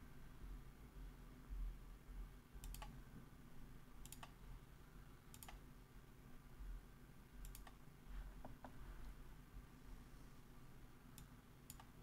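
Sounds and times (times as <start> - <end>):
computer mouse clicks: 2.6 - 3.0, 4.0 - 4.4, 5.3 - 5.6, 7.4 - 7.8, 11.1 - 12.0.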